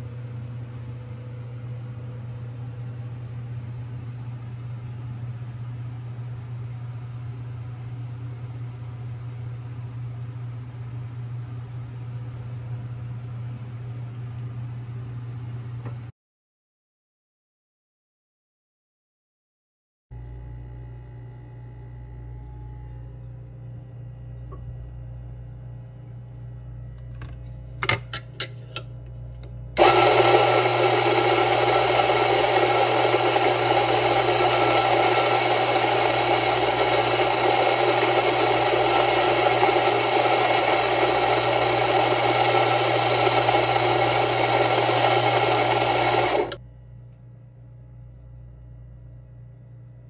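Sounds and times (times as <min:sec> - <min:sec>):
coffee grinder grinding beans: 0:29.8 - 0:46.6.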